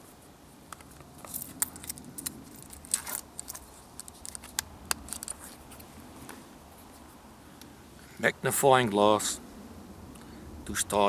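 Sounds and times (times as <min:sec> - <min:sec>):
leather pouch handling: 0:00.7 - 0:07.1.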